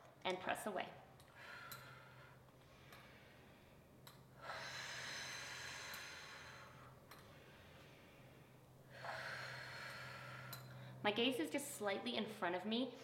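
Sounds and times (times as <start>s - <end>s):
woman exhaling: 4.4s - 6.9s, 8.9s - 10.9s.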